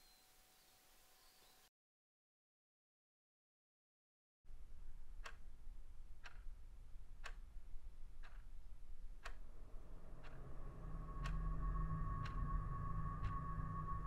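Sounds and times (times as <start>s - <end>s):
low hum: 4.5s - 14.0s
alarm clock ticking: 8.2s - 14.0s
steady tone: 8.9s - 14.0s.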